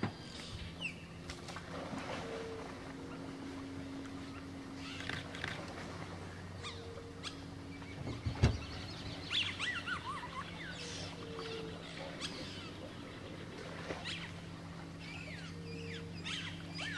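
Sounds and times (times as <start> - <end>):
steady low hum: 0.0 - 16.9
birds chirping and whistling: 6.5 - 16.9.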